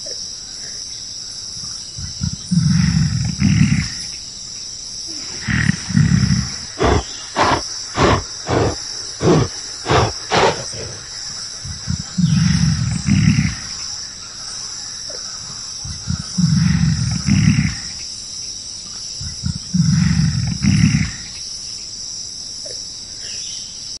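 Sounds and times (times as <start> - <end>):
insects droning: 0.0 - 24.0
gorilla roaring growls: 2.2 - 4.1, 5.2 - 11.1, 11.8 - 13.8, 16.1 - 18.0, 19.3 - 21.3.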